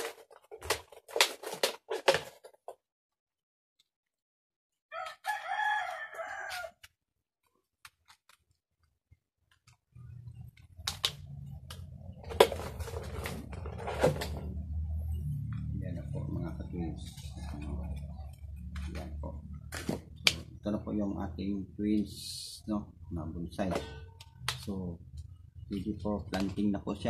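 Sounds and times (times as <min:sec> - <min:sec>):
rooster crowing: 0:04.9 - 0:06.8.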